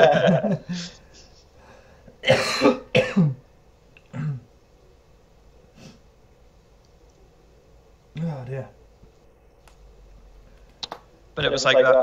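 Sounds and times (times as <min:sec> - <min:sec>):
man clearing his throat: 0:02.2 - 0:03.4, 0:04.1 - 0:04.5
man coughing: 0:02.2 - 0:03.4, 0:04.1 - 0:04.5.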